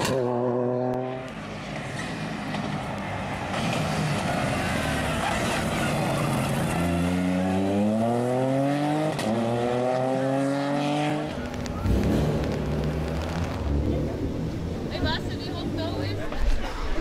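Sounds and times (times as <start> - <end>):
rally car engine accelerating: 3.5 - 14.9.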